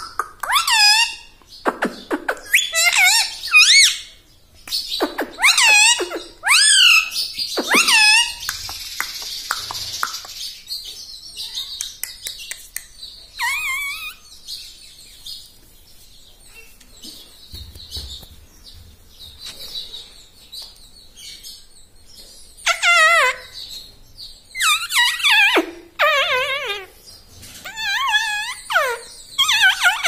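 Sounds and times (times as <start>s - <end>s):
parakeet warbling calls: 0.0s - 4.1s, 4.9s - 8.8s, 13.3s - 14.4s, 22.6s - 23.7s, 24.6s - 30.0s.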